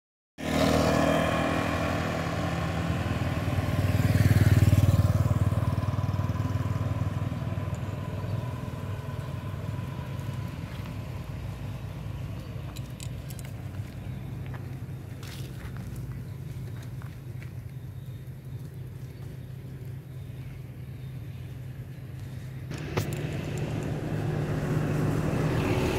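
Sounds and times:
vehicle engine passing: 0:00.4 - 0:12.6, 0:22.7 - 0:25.9.

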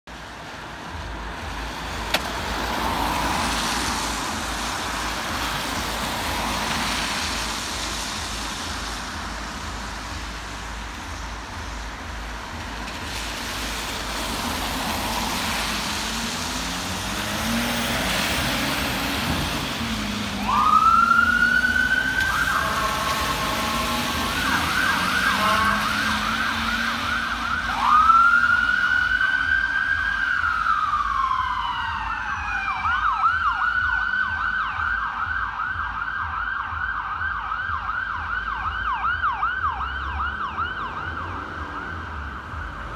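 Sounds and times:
vehicle engine and road noise: 0:00.0 - 0:42.9
ambulance siren wailing: 0:14.1 - 0:42.9
siren yelp: 0:18.5 - 0:42.8
siren bullhorn tone: 0:20.4 - 0:29.8.

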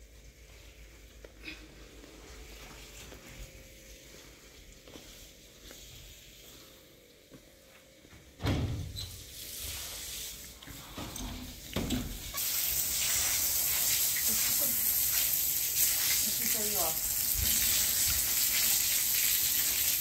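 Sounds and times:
high hiss like food frying: 0:09.1 - 0:20.0.

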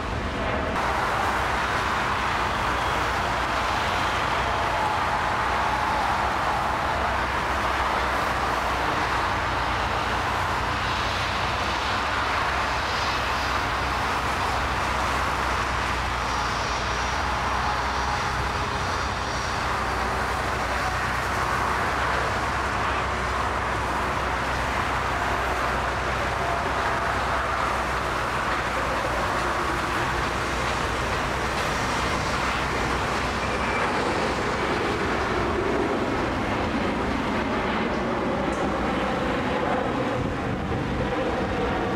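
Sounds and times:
jet engines roaring: 0:00.0 - 0:41.9.

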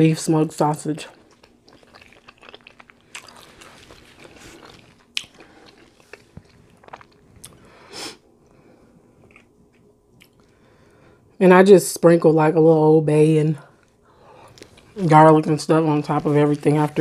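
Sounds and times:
close chewing and mouth sounds: 0:00.8 - 0:07.8, 0:08.4 - 0:10.6, 0:13.7 - 0:17.0.

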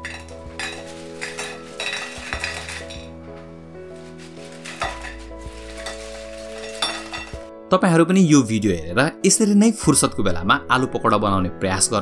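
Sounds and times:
fried snacks clattering onto plate: 0:00.0 - 0:03.1, 0:04.0 - 0:07.5
soft background music: 0:00.0 - 0:12.0.

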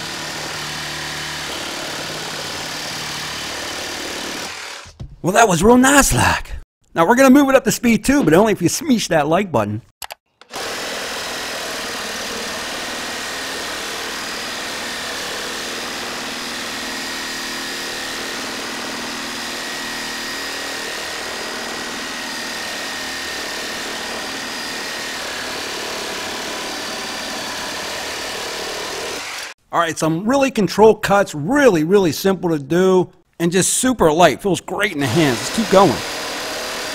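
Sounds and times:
reciprocating saw cutting wood: 0:00.0 - 0:05.0, 0:10.4 - 0:29.6, 0:35.0 - 0:36.9.

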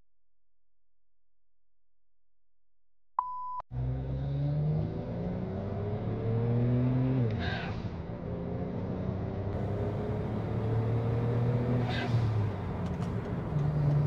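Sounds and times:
short beep: 0:03.2 - 0:03.6
car engine accelerating: 0:03.7 - 0:14.0.

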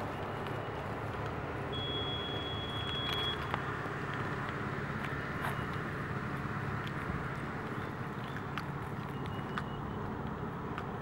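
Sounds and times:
outdoor background rumble: 0:00.0 - 0:11.0
thin high whistle: 0:01.8 - 0:03.4.

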